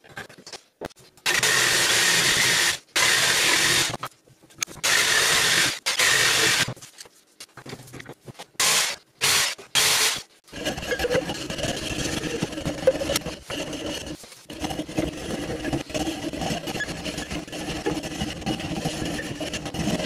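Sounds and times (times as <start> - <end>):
electric jigsaw cutting wood: 1.3 - 3.9, 4.8 - 6.7, 8.6 - 10.2.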